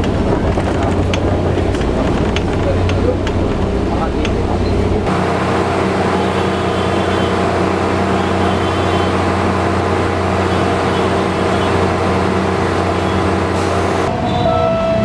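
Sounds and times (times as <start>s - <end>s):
diesel train engine idling: 4.8s - 14.1s.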